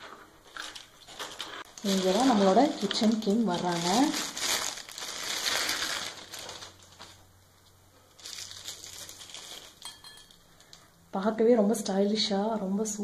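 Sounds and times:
plastic bag crinkling: 0.4 - 7.3, 8.0 - 10.9.

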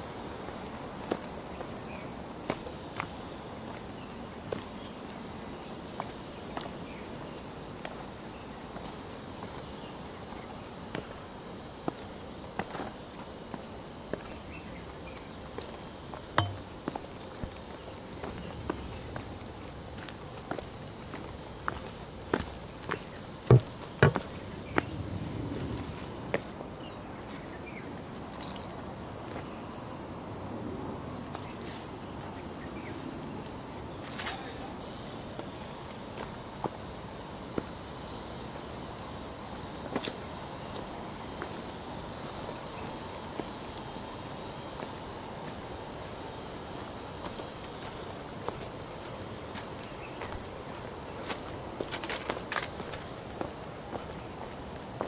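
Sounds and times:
insects chorus: 0.0 - 55.0
footsteps on dirt and stone: 15.3 - 24.9, 46.8 - 50.5, 51.2 - 55.0.

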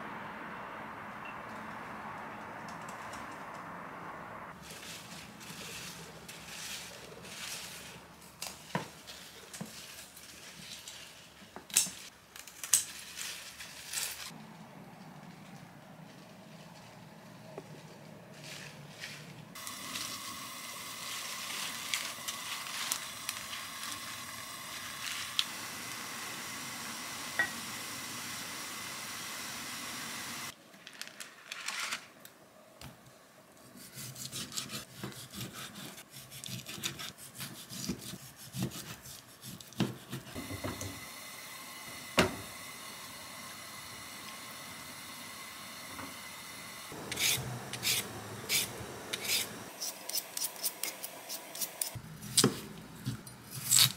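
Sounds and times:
water hissing in a pot: 19.6 - 30.5, 40.3 - 52.0
peeler scraping potato: 33.8 - 40.4, 46.9 - 52.5, 53.5 - 53.9.

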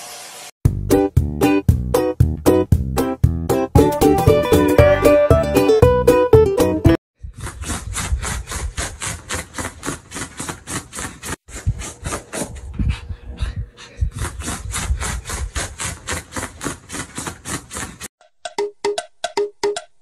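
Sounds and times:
puppy claws scraping fabric: 7.4 - 12.7, 14.2 - 18.1.

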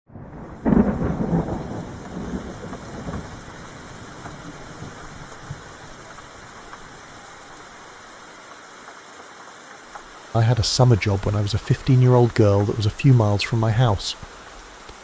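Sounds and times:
thunder rumbling: 0.1 - 8.0
steady falling rain: 0.1 - 15.0.

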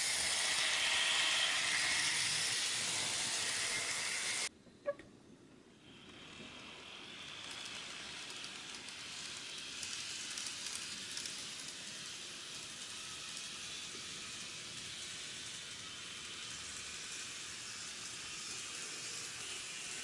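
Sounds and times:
model train whirring: 0.0 - 4.5, 5.8 - 20.0
wheels clicking on rails: 5.9 - 20.0.

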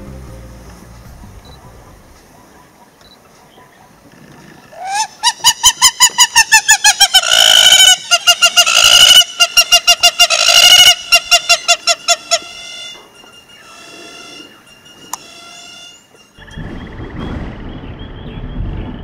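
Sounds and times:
bird calling rapid notes: 4.7 - 12.9.

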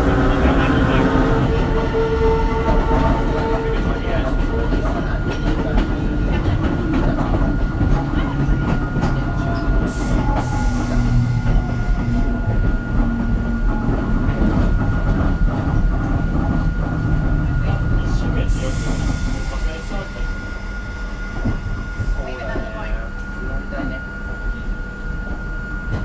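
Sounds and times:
train machinery rumbling: 0.0 - 26.0.

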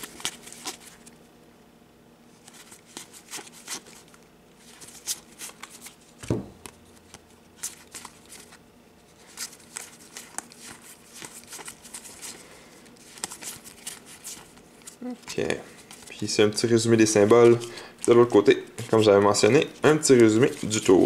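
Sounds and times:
soft thump: 6.3 - 6.6.

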